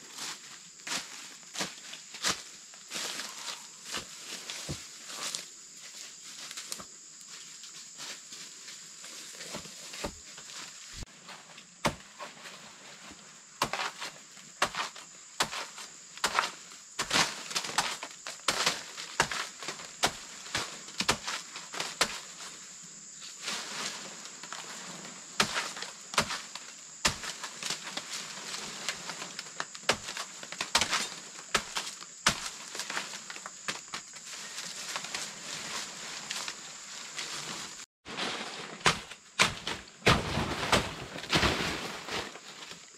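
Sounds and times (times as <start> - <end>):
dry leaves rustling: 2.9 - 5.4, 23.4 - 42.9
blade chopping plant stalks: 11.8 - 12.2, 13.6 - 22.3, 25.4 - 28.1, 28.8 - 34.1, 38.1 - 42.5.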